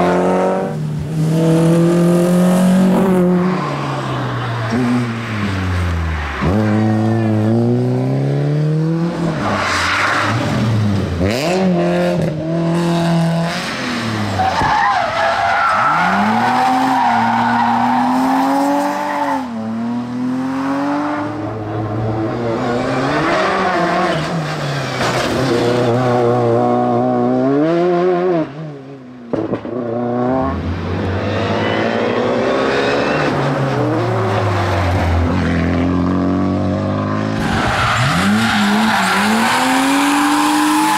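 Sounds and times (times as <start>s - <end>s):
race car engines revving: 0.0s - 40.9s
tyre squeal: 31.4s - 33.4s.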